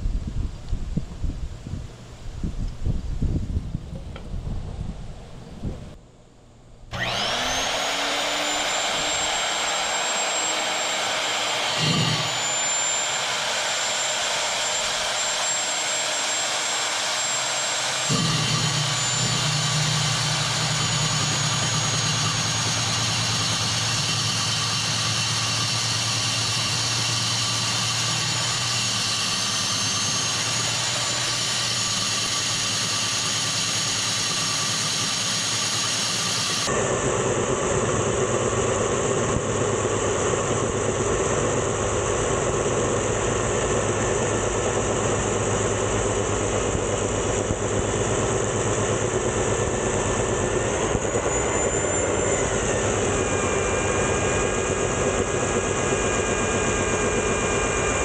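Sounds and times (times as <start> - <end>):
drill bit grinding into concrete: 6.9 - 36.7
electric drill motor whining: 6.9 - 37.0, 37.7 - 58.0.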